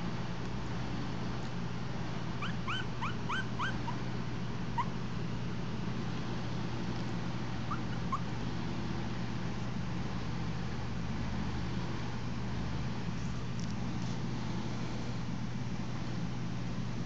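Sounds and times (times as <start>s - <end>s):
steady low hum: 0.0s - 17.0s
puppies whimpering: 2.4s - 4.0s, 7.7s - 8.3s.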